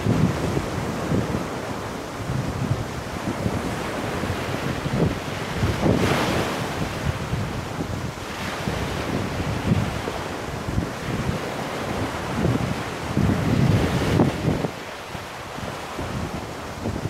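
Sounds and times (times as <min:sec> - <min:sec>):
surf on pebble beach: 0:00.0 - 0:17.0
wind buffeting microphone: 0:00.0 - 0:17.0.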